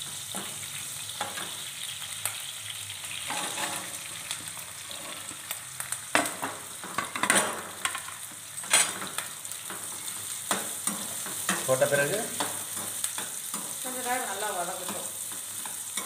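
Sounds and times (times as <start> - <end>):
vegetables sizzling in hot oil: 0.0 - 16.0
metal spoon scraping pan: 3.2 - 4.1.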